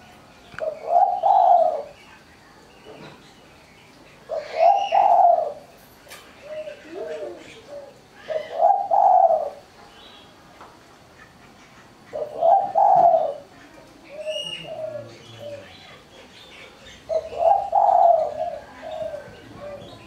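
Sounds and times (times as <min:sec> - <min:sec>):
dove cooing: 0:00.6 - 0:02.0, 0:04.2 - 0:05.7, 0:06.4 - 0:09.7, 0:11.8 - 0:16.1, 0:16.7 - 0:20.0.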